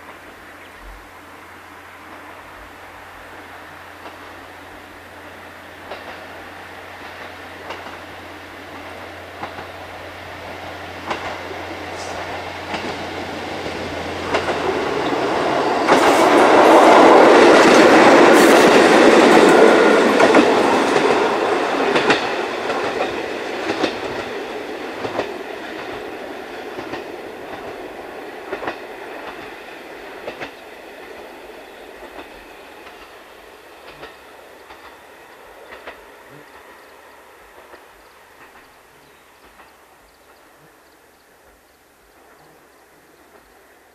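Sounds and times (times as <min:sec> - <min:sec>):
diesel railcar engine: 0:00.0 - 0:40.7
wheels clicking over rail joints: 0:04.0 - 0:04.4, 0:05.8 - 0:40.5.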